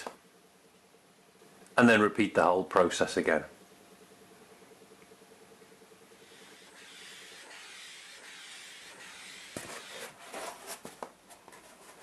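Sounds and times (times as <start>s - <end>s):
blow lamp hissing: 6.2s - 10.0s.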